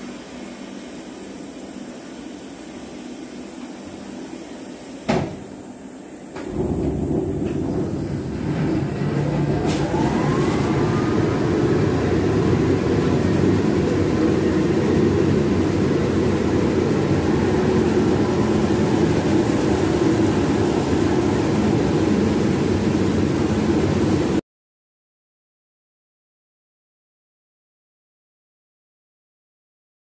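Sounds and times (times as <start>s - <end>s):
washing machine wash noise: 0.0s - 24.4s
motor whine: 6.4s - 24.4s.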